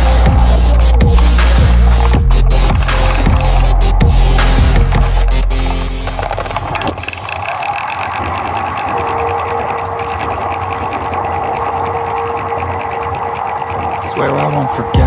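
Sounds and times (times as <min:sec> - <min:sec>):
vehicle engines: 0:00.0 - 0:07.9
road noise: 0:00.0 - 0:15.0
steady hum: 0:00.0 - 0:15.0.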